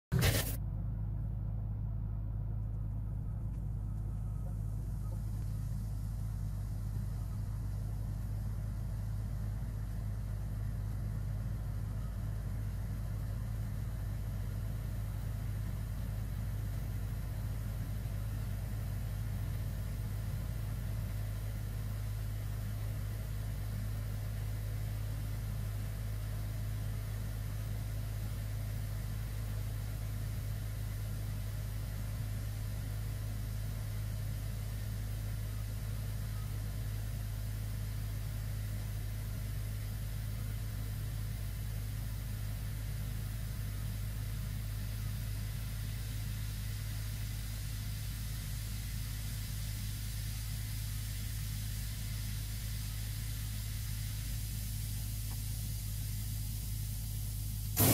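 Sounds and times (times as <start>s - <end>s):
low hum: 0.0s - 57.9s
fizzing hiss in sink drain: 44.8s - 57.9s.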